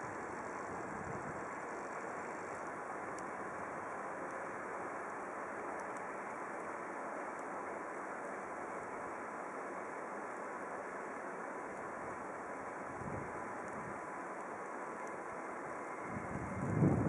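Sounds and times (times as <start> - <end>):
distant road traffic hiss: 0.0 - 17.0
faint high ticks: 1.6 - 3.4, 4.2 - 6.4, 13.6 - 15.4.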